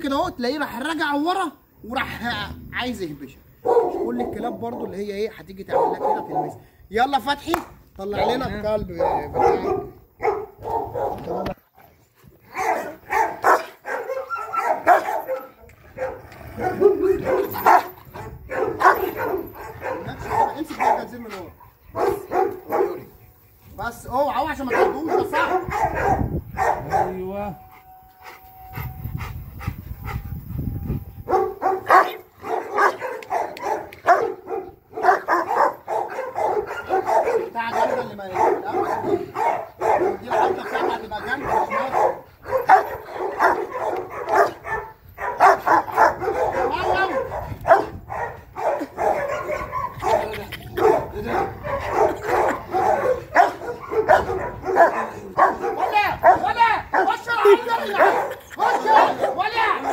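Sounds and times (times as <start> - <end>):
dog barking: 3.6 - 5.0, 5.7 - 6.6, 9.0 - 11.6, 12.5 - 23.1, 24.4 - 27.3, 31.3 - 59.9.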